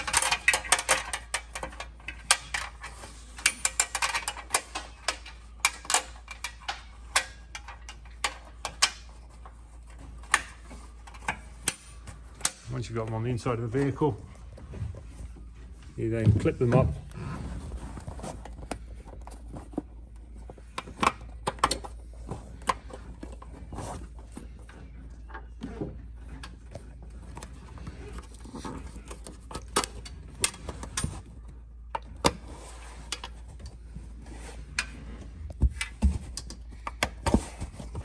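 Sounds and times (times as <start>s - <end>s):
metal clips clicking and rattling: 0.0s - 9.1s
low steady hum: 0.0s - 38.0s.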